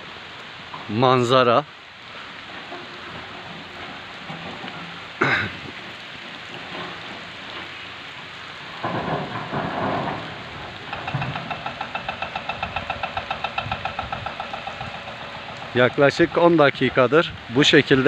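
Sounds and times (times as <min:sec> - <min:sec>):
rain falling: 0:00.0 - 0:18.0
engine knocking slowly: 0:08.8 - 0:16.4.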